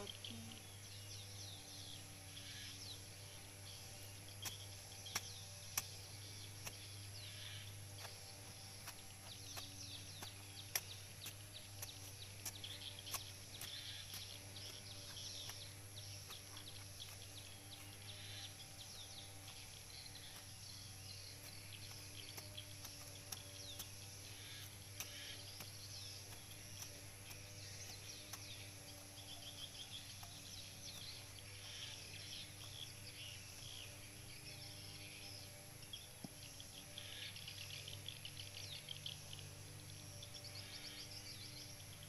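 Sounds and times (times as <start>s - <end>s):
small birds chirping: 0.0s - 42.0s
steady low hum: 0.0s - 42.0s
knife striking soil: 3.9s - 35.5s.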